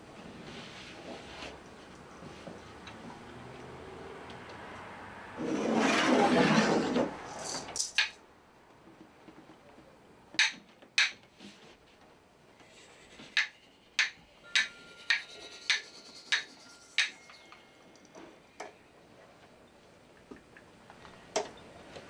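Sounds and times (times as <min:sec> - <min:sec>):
wooden sticks clacking: 0:07.4 - 0:08.2, 0:10.4 - 0:11.3, 0:13.2 - 0:18.7.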